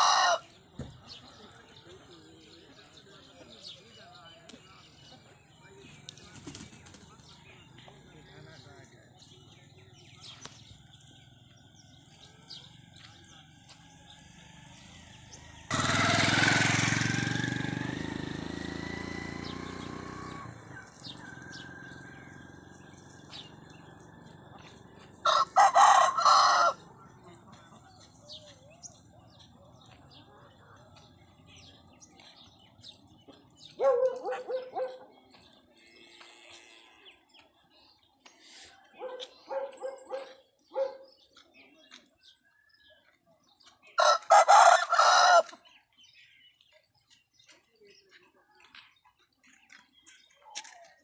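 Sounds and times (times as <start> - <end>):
rooster crowing: 0.0 - 0.5, 20.8 - 22.5, 25.2 - 26.8, 44.0 - 45.6.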